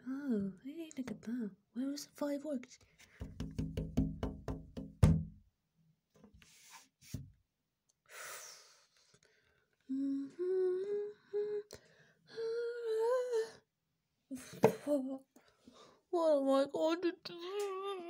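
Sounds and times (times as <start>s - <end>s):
soft knocks: 3.2s - 5.4s
person humming: 9.9s - 11.7s.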